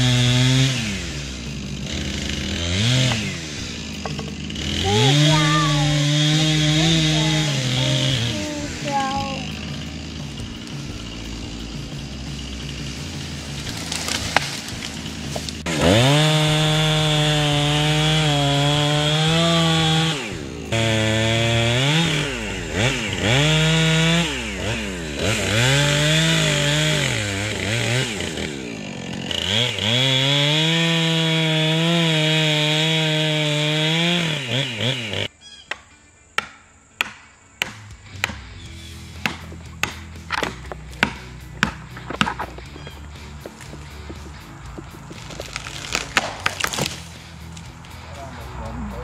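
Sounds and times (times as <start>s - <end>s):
chainsaw cutting wood: 0.0s - 35.3s, 36.4s - 48.0s.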